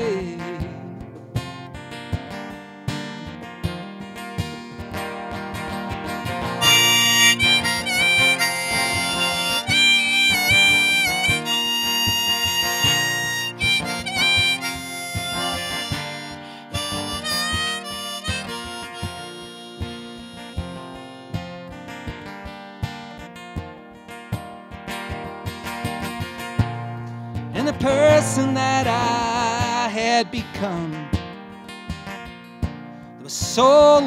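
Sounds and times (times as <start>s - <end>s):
strummed acoustic guitar: 0.0s - 34.0s
harmonica solo: 6.4s - 21.9s.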